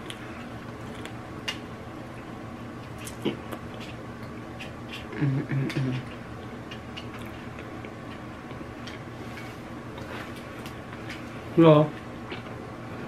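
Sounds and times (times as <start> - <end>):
person chewing wetly: 0.0 - 1.6, 2.8 - 9.1
person humming: 5.1 - 6.1.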